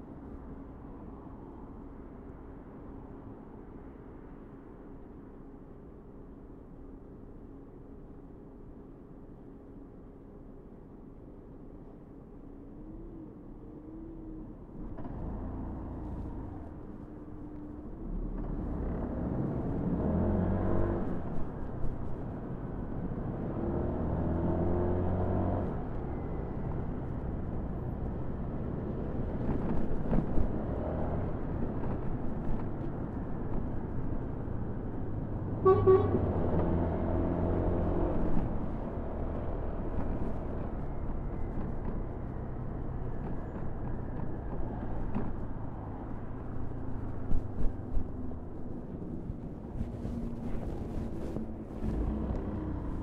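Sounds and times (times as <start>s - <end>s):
road and wind noise: 0.0s - 53.0s
vehicle horn toot: 35.6s - 36.2s.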